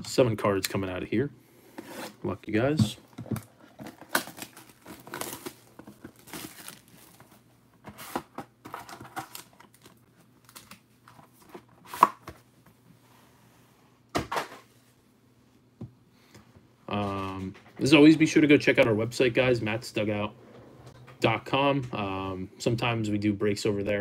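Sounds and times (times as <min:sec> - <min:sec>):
packaging crinkling: 0:03.4 - 0:11.5.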